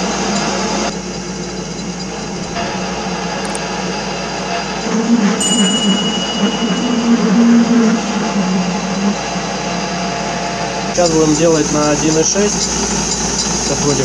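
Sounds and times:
lathe motor and gear rumble: 0.0 - 14.0
high steady tone: 5.2 - 9.6.

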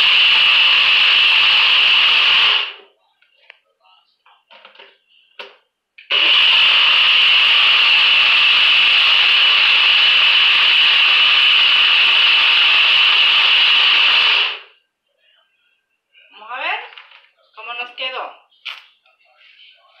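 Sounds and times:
blender running with high whine: 0.0 - 2.8, 6.0 - 14.7.

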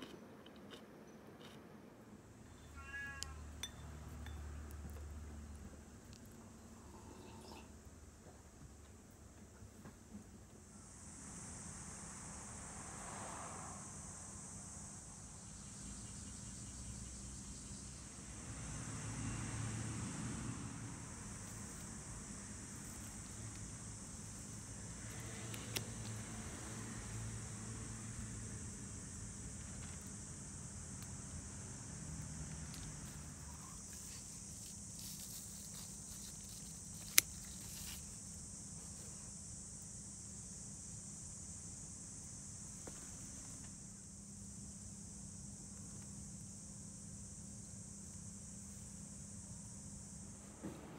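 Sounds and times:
insects chirping: 2.2 - 8.8, 9.8 - 50.6
shears snipping stem: 35.0 - 38.0.

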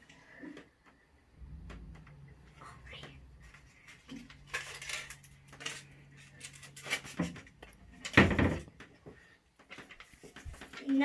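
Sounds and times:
low hum: 1.2 - 6.5.

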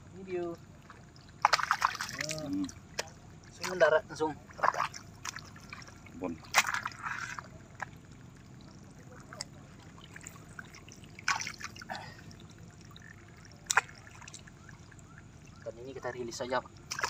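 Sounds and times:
hands splashing in water: 1.4 - 3.9, 4.5 - 7.9, 10.1 - 12.0, 13.6 - 14.4.

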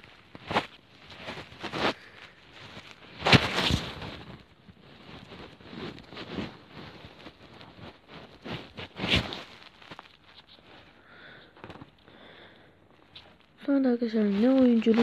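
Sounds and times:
taps and rustles on phone: 11.4 - 12.0.

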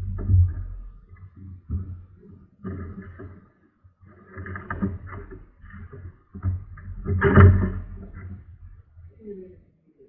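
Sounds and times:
paddle splashing and knocking: 0.0 - 3.4, 4.2 - 8.8.

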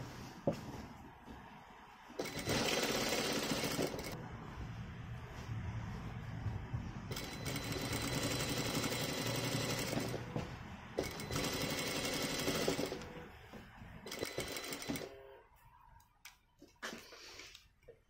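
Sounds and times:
sewing machine stitching: 2.2 - 4.2, 7.1 - 10.4, 11.0 - 13.2, 14.0 - 15.2.

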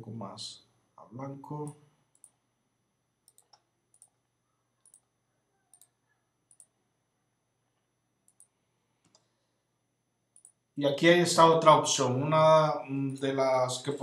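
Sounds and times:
faint computer mouse clicks: 3.2 - 4.2, 5.7 - 6.7, 8.3 - 9.4, 10.4 - 10.6.

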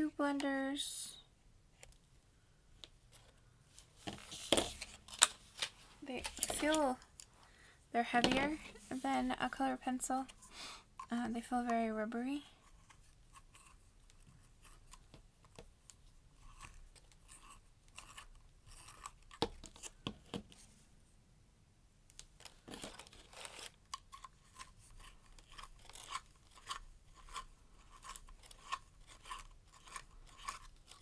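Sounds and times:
pencil sharpener scraping: 12.5 - 15.0, 16.4 - 20.0, 22.8 - 31.0.

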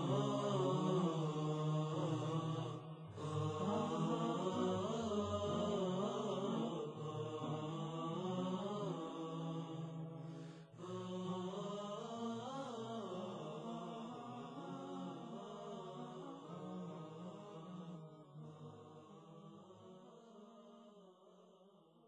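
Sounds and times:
vocal drone: 0.0 - 20.1
hummed chant-like melody: 0.0 - 21.5.

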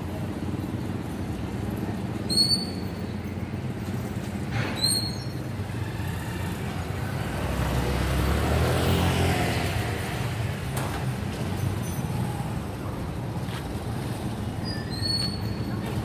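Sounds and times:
road traffic rumble: 0.0 - 16.0
vehicle passing: 5.7 - 10.5.

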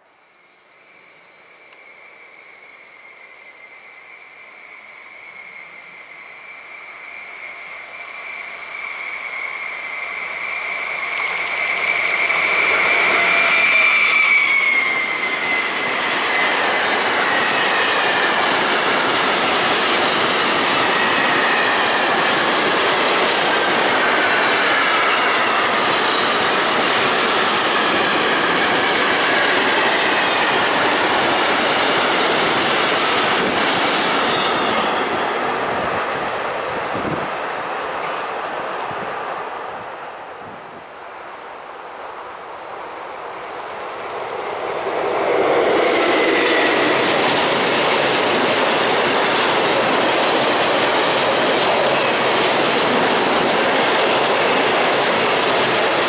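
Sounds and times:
locomotive whine: 0.0 - 41.0, 41.6 - 56.0
rolling train wheels: 0.8 - 40.0, 42.7 - 56.0.

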